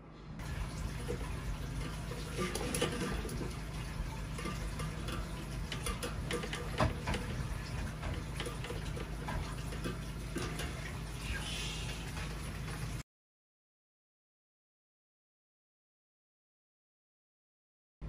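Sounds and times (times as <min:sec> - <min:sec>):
low machine hum: 0:00.0 - 0:13.0
water trickling: 0:00.4 - 0:13.0.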